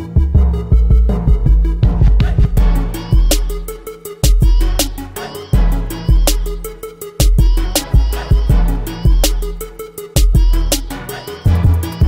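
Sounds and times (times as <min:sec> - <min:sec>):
hip-hop beat: 0:00.0 - 0:12.0.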